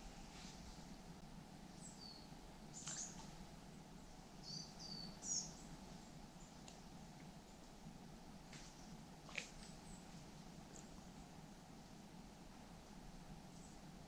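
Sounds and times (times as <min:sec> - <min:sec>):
small bird chirps: 0:01.8 - 0:03.3, 0:04.4 - 0:05.6.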